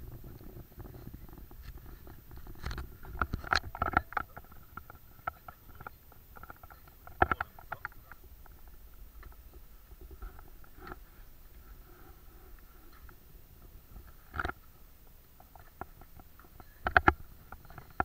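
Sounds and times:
knocks clicks and rustles: 0:00.0 - 0:11.8.

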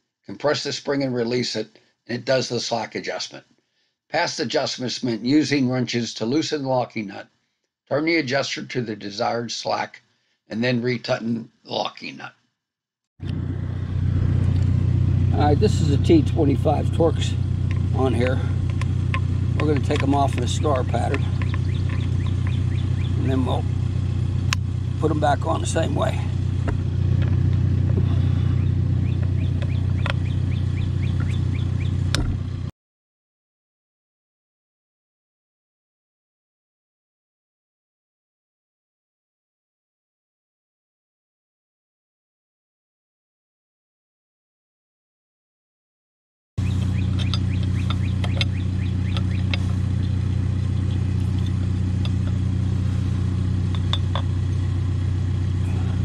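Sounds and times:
chipper engine running: 0:13.2 - 0:32.7, 0:46.6 - 0:56.0
bird chirping rapidly: 0:19.2 - 0:23.8, 0:28.2 - 0:32.1, 0:46.6 - 0:52.2
light metallic clicks: 0:46.7 - 0:49.7.

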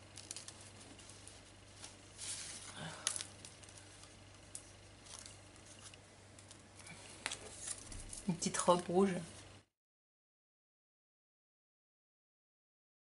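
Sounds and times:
paper rustling: 0:00.0 - 0:08.5.

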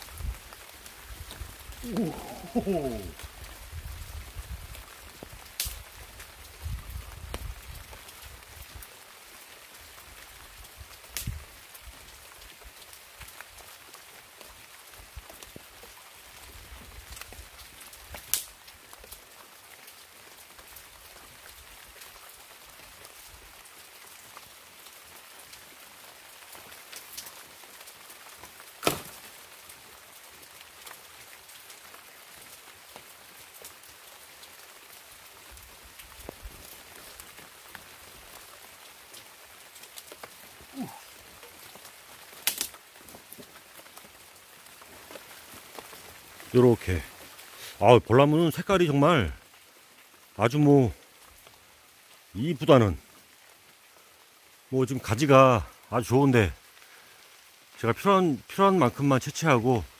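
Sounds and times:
light rain pattering on leaves: 0:00.0 - 0:59.9
small drip ticks: 0:02.3 - 0:08.9
sharp cracks: 0:28.8 - 0:29.3, 0:42.4 - 0:42.8.

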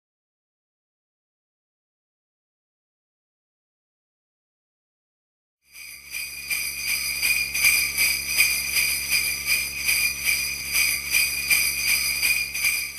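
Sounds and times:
sleigh bells shaking: 0:05.7 - 0:12.9.

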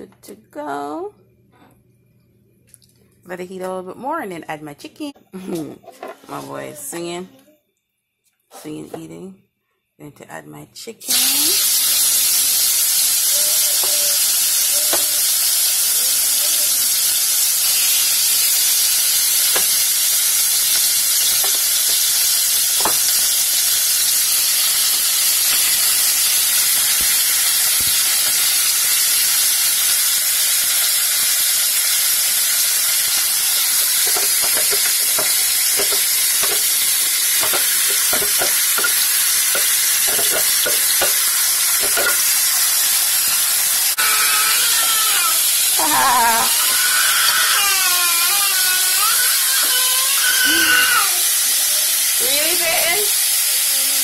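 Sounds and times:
chicken sizzling in hot oil: 0:11.0 - 0:54.0.

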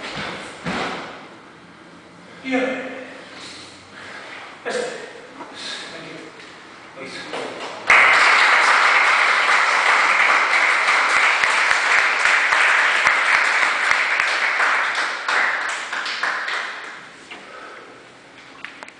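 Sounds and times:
people applauding: 0:07.8 - 0:17.1.

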